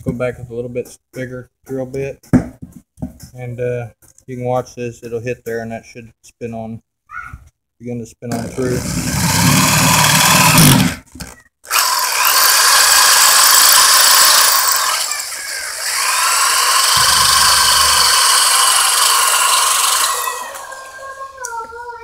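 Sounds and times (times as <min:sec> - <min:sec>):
electric drill whining: 0:08.3 - 0:21.4.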